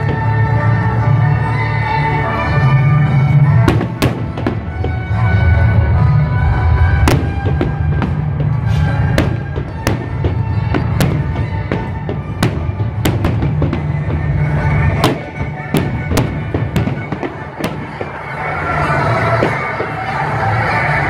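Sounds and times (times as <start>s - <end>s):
fireworks bangs: 3.5s - 5.8s, 6.6s - 21.0s.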